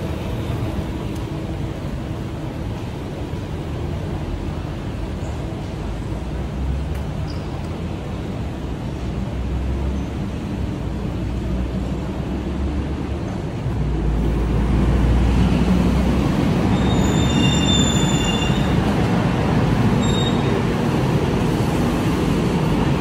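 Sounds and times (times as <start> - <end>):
bus engine rumbling: 0.0 - 23.0
traffic noise: 0.0 - 23.0
brakes squealing: 16.6 - 18.9, 19.9 - 20.7.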